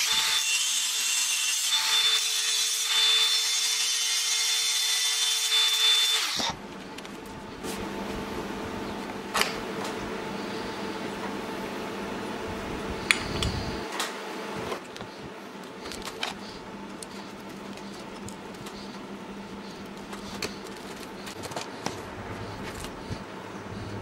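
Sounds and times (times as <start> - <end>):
faint steady hum: 6.5 - 24.0.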